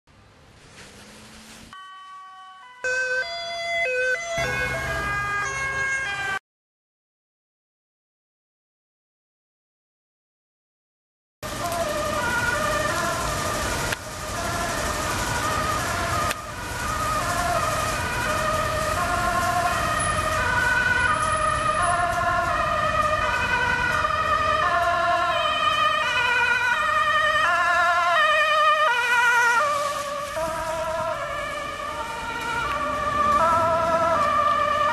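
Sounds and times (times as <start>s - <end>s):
vehicle engine rumble: 0.1s - 1.8s, 11.4s - 34.9s
two-tone sirens: 1.7s - 6.4s, 11.4s - 34.9s.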